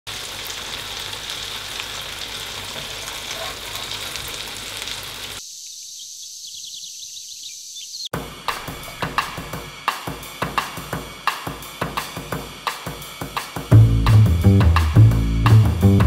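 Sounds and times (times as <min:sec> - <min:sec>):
chicken sizzling in a frying pan: 0:00.1 - 0:05.5
high hiss: 0:00.1 - 0:13.8
bird chirps: 0:05.4 - 0:09.4.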